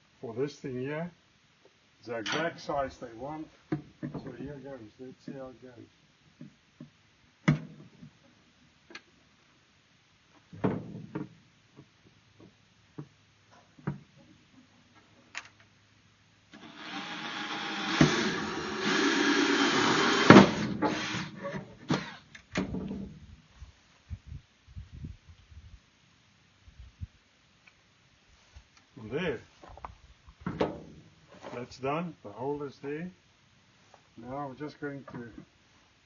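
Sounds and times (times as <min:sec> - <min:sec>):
drill hole saw cutting plastic: 0:16.6 - 0:22.2.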